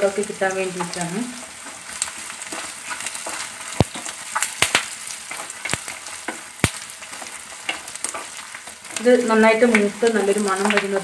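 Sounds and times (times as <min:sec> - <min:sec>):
spices sizzling in hot oil: 0:00.0 - 0:11.0
spatula scraping: 0:01.6 - 0:04.5.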